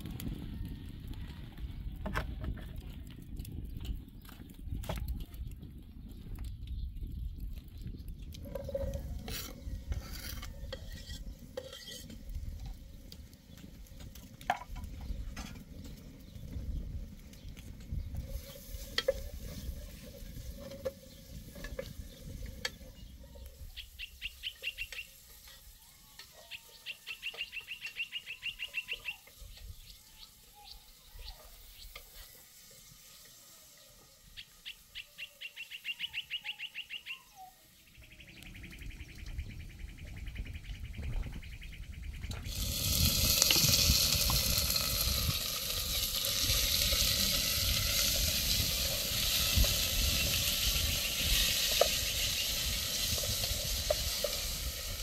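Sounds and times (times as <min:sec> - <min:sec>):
spoon stirring in metal pot: 0:08.5 - 0:12.8
bird singing high trills: 0:22.9 - 0:25.2, 0:26.3 - 0:31.9, 0:34.3 - 0:40.5.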